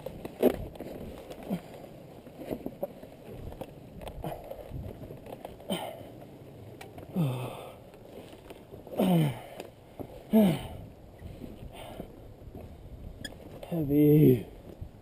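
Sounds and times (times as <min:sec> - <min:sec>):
man breathing hard: 0:07.1 - 0:07.9, 0:08.9 - 0:12.2.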